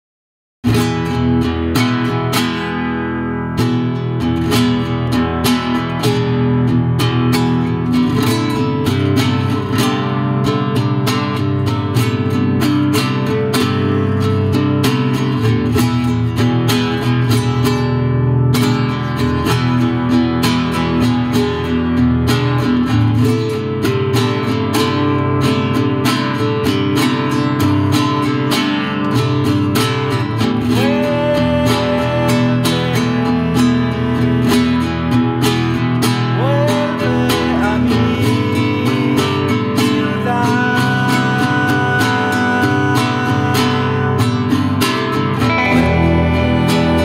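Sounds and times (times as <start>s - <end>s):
strummed acoustic guitar: 0.6s - 47.0s
sustained layered notes: 45.4s - 47.0s.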